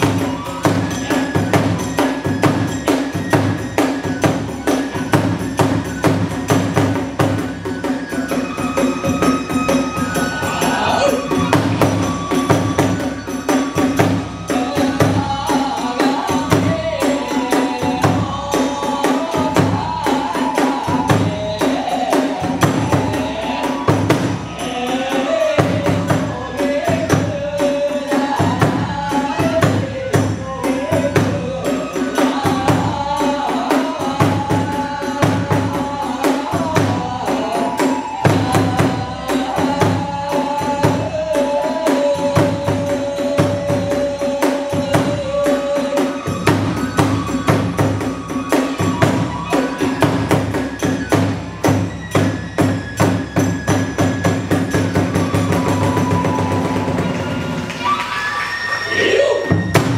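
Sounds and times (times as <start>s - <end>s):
wavering flute melody: 0.0s - 59.9s
large drum beating: 10.2s - 24.6s.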